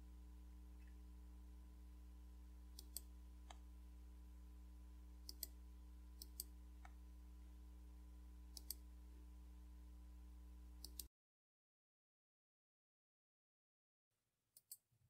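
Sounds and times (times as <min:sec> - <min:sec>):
low electrical hum: 0:00.0 - 0:11.1
computer mouse button clicks: 0:02.8 - 0:03.6, 0:05.3 - 0:05.5, 0:08.6 - 0:08.8
soft ticks: 0:02.8 - 0:03.6, 0:06.2 - 0:07.0, 0:08.5 - 0:08.8, 0:10.8 - 0:11.1.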